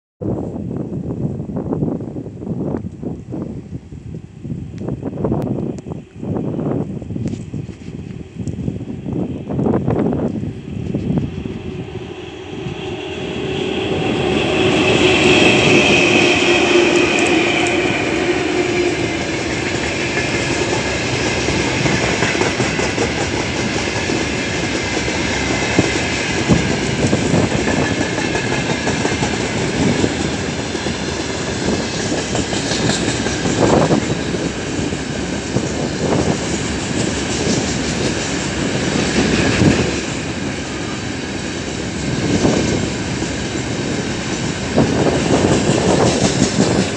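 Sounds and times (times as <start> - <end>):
electric locomotive whine: 0.2 - 46.9
wheels clacking over rail joints: 14.5 - 34.5.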